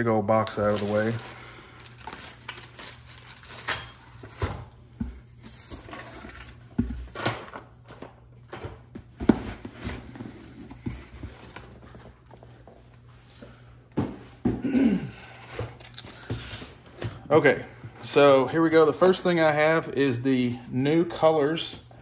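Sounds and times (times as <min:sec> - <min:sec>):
plastic packaging rustling: 0:00.3 - 0:04.4.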